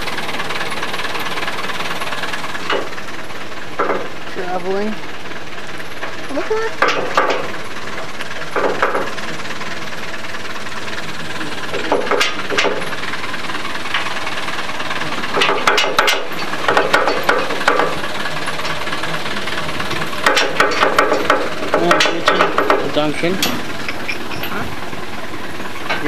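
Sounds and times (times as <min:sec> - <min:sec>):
tractor engine running: 0:00.0 - 0:26.0
trailer frame and chain rattling: 0:00.0 - 0:26.0.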